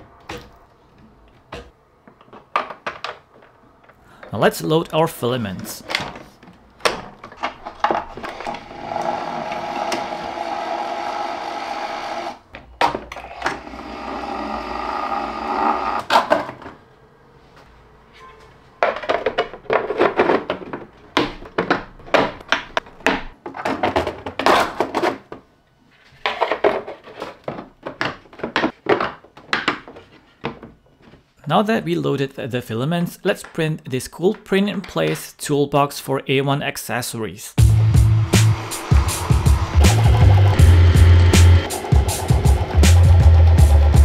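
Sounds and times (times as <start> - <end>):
feeder motor whirring: 8.3 - 12.4, 13.5 - 16.1, 38.1 - 44.0.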